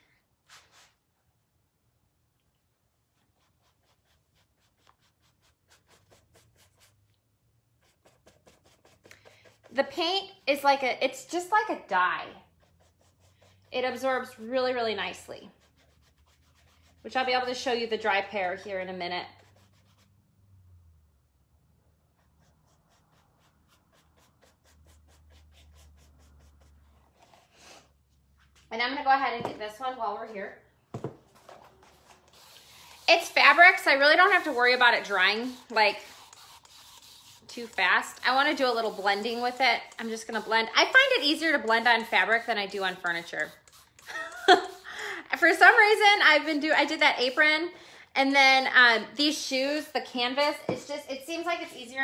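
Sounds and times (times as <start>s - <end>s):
paintbrush strokes on canvas: 31.4s - 44.9s.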